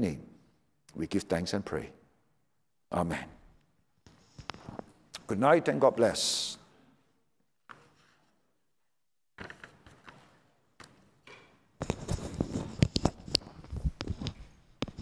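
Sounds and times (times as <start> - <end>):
lapel microphone handling noise: 4.0 - 5.3, 9.4 - 15.0.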